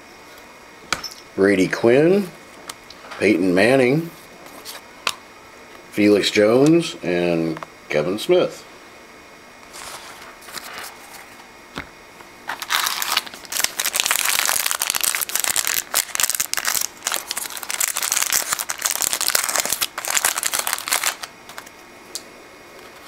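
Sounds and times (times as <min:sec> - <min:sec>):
foil wrapper crinkling: 0:12.5 - 0:21.7.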